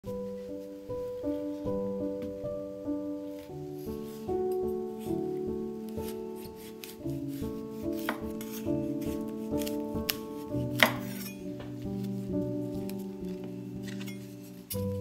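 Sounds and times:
soft background music: 0.0s - 15.0s
knife cutting on wooden board: 6.0s - 11.4s.

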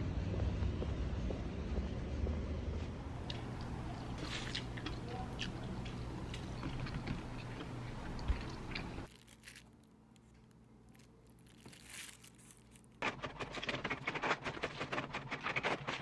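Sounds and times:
plastic bag crinkling: 9.0s - 14.0s.

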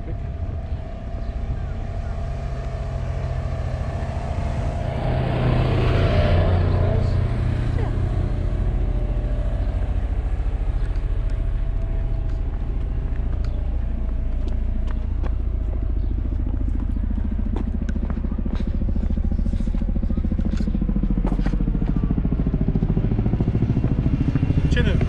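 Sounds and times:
low pulsing mechanical drone: 0.0s - 25.0s.

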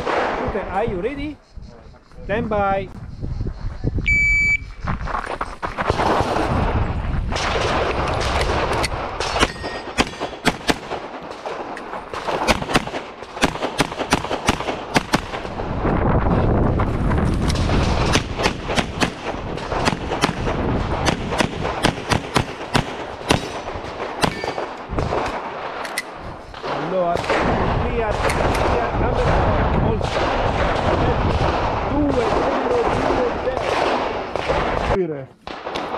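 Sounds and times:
rapid pistol shots: 0.0s - 0.8s, 7.3s - 15.6s, 17.4s - 35.9s.

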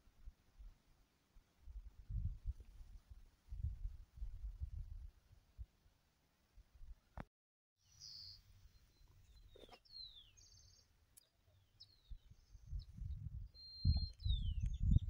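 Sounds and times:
wild birds chirping and whistling: 7.8s - 15.0s.

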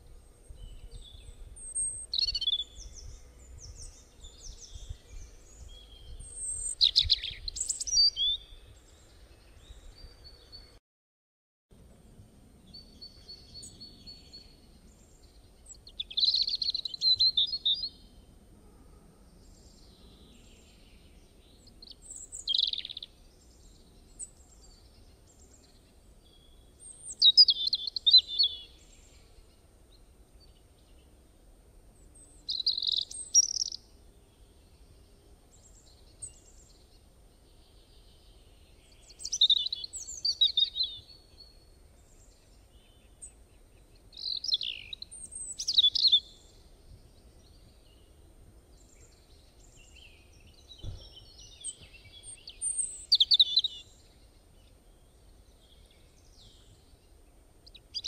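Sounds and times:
faint background noise: 11.7s - 58.0s
birds chirping: 19.3s - 31.2s, 32.0s - 58.0s.

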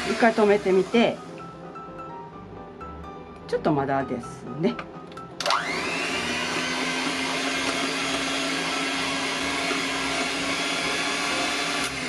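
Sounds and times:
electric hand mixer whining: 0.0s - 1.4s, 5.4s - 12.0s.

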